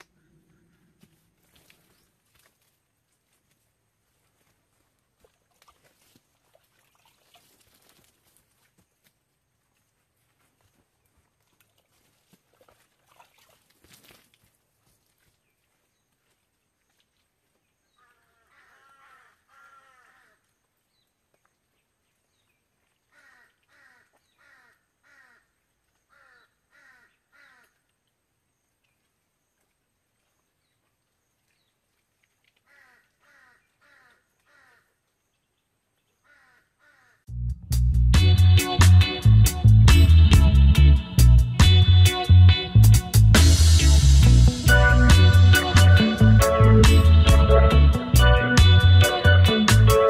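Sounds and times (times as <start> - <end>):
bird harsh calls: 26.1 - 27.7.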